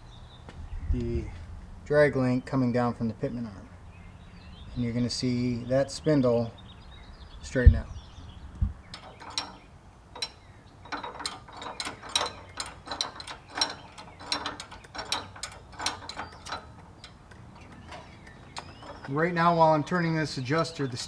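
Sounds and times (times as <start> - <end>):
wrench clicking: 8.9 - 19.4.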